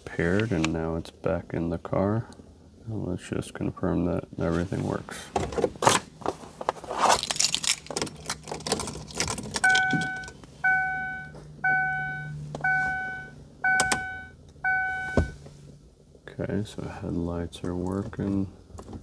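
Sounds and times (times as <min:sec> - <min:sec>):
keys jangling and clicking: 0:07.2 - 0:10.3
car warning chime beeping: 0:09.6 - 0:15.4.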